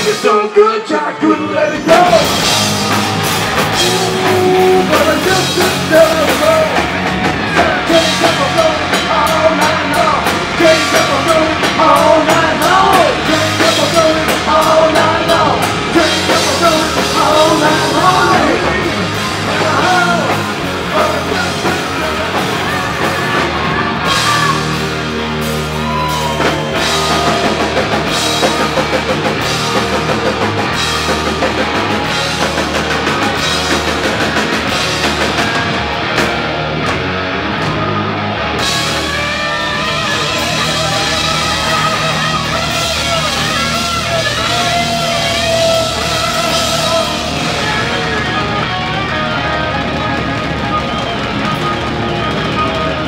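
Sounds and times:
bass: 0.0s - 53.0s
drum kit: 0.0s - 53.0s
electric guitars: 0.0s - 53.0s.

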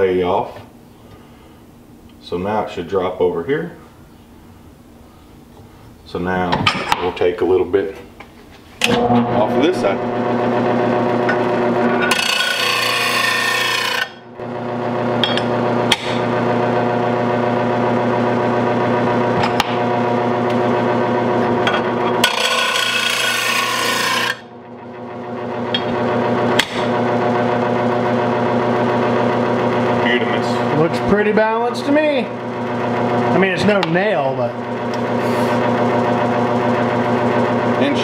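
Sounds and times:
metal blade grinding: 11.2s - 14.2s, 21.6s - 24.5s.

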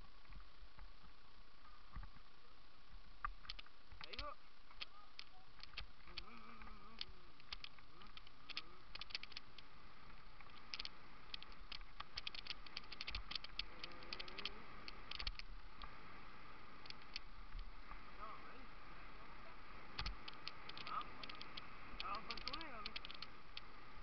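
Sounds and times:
bicycle rattling with sharp clicks: 3.3s - 9.8s, 10.4s - 16.0s, 16.8s - 17.7s, 19.9s - 23.8s.

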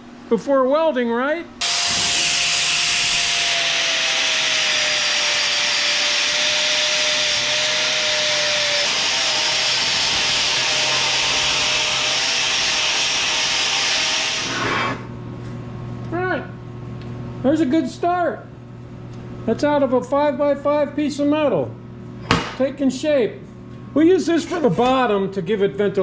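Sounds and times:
angle grinder grinding steel: 1.6s - 15.0s.

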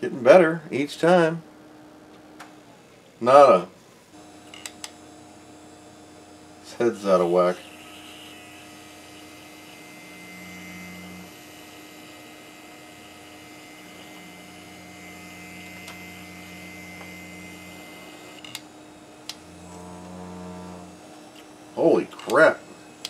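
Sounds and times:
equipment hum: 3.8s - 23.0s
hard drive spin-up drone: 7.2s - 12.1s, 12.8s - 18.4s, 19.3s - 21.2s.

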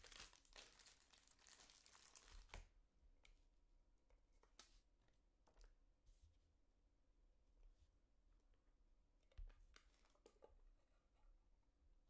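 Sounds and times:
plastic crinkling and rustling: 0.0s - 2.7s, 9.7s - 10.5s.

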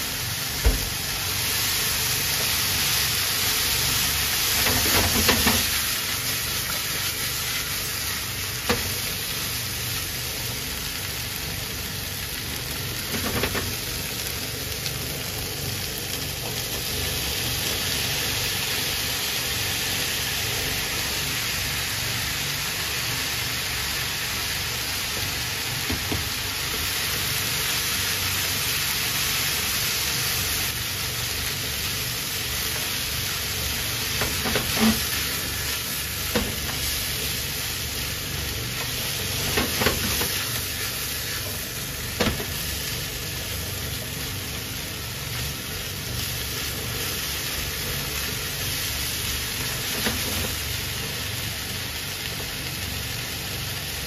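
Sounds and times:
food sizzling in frying pan: 0.0s - 54.0s.

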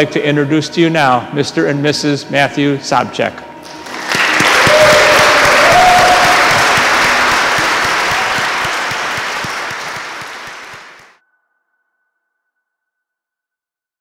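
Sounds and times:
congregation applauding: 3.6s - 11.2s.

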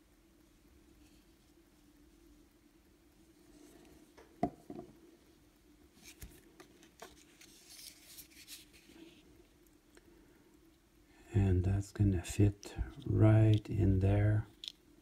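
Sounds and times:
plastic model clicking: 14.5s - 14.8s.

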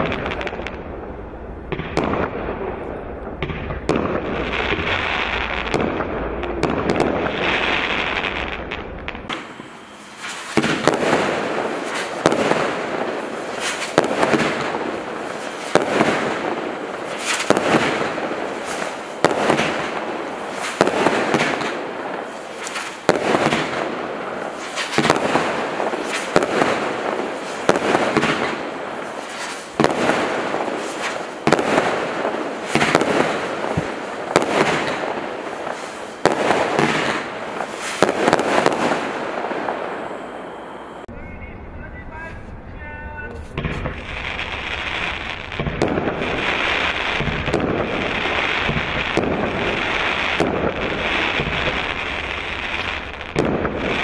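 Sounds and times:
firework fizzing rush: 3.7s - 41.0s
firework cake bangs: 10.3s - 21.8s, 22.6s - 39.8s, 43.3s - 54.0s.

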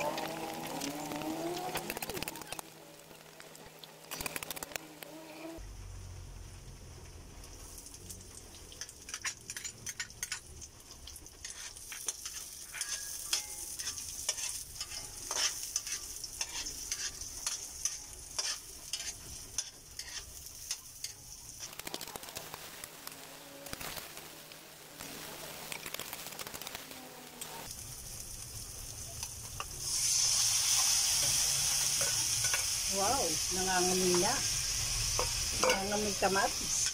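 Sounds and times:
onions sizzling in hot oil: 0.0s - 36.9s
metal spatula scraping pan: 11.4s - 21.3s, 35.2s - 36.1s.

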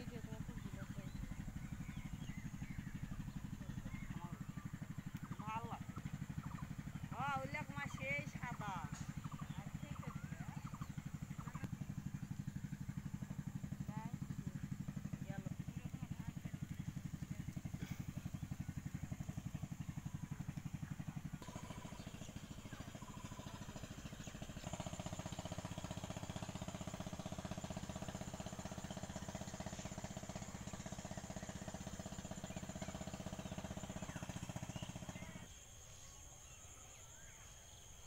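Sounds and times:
small engine running: 0.0s - 38.0s
high insect trill: 21.4s - 38.0s.

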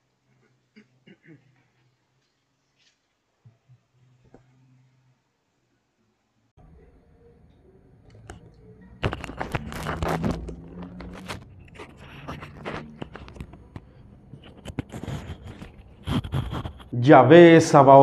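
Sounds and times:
faint low hum: 0.0s - 16.6s
rustling and scraping with clicks: 8.1s - 17.0s.

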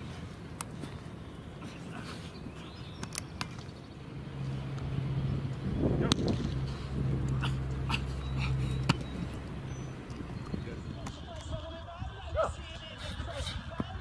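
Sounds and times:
outdoor ambience: 0.0s - 14.0s
low hum: 3.6s - 11.2s.

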